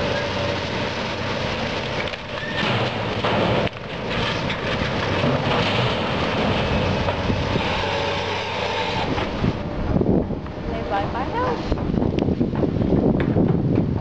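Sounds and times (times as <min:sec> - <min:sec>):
excavator diesel engine running: 0:00.0 - 0:12.0
timber crashing into metal dumpster: 0:01.9 - 0:09.6.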